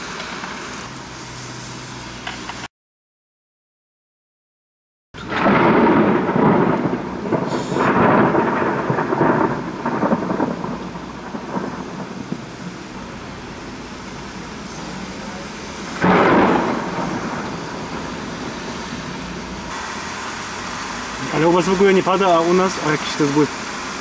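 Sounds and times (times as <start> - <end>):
thunder clap: 5.2 - 13.1, 16.0 - 19.7
thunder rolling: 5.2 - 19.8
heavy rain: 5.2 - 24.0.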